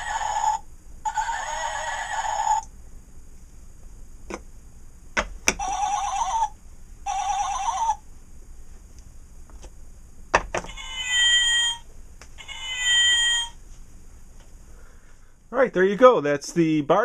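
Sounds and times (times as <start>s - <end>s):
horse whinny from toy speaker: 0.0s - 2.6s, 5.6s - 6.5s, 7.1s - 8.0s, 10.7s - 11.8s, 12.4s - 13.5s
sheep bleats from toy speaker: 0.0s - 2.6s.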